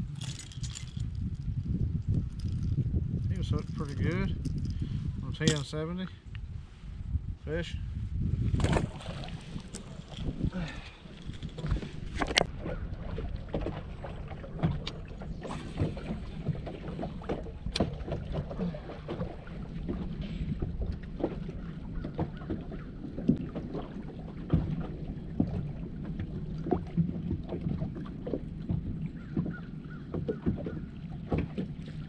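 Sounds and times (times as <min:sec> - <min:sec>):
wind rumble on microphone: 0:00.0 - 0:32.0
water slapping against boat hull: 0:08.4 - 0:32.0.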